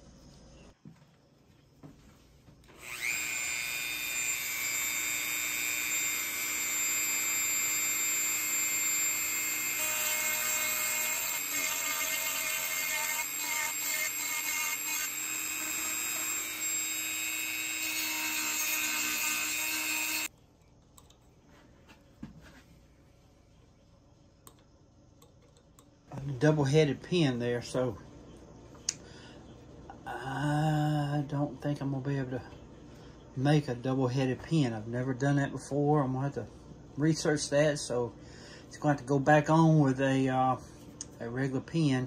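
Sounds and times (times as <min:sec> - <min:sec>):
rotary tool grinding metal: 0:02.7 - 0:20.3.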